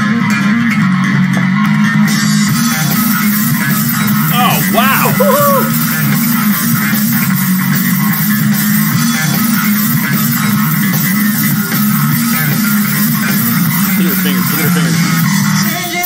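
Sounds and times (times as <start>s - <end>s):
electric bass riff: 10.6s - 15.6s.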